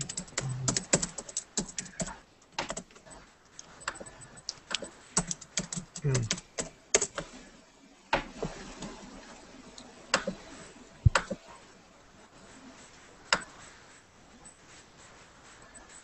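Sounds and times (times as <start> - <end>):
computer mouse clicks: 0.0 - 7.3.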